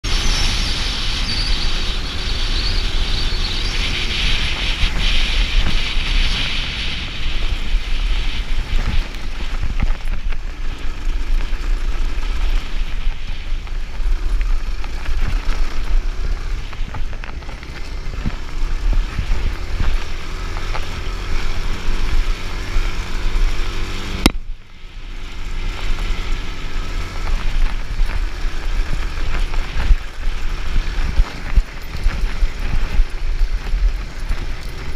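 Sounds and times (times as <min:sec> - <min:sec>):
wind buffeting: 0:00.0 - 0:24.0
motorcycle engine revving: 0:00.0 - 0:34.9.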